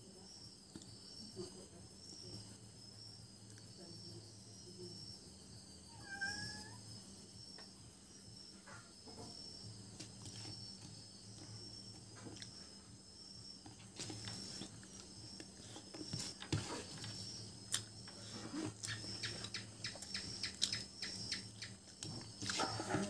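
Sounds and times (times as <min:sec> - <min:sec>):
crickets trilling: 0:00.0 - 0:23.0
chewing: 0:17.7 - 0:20.9.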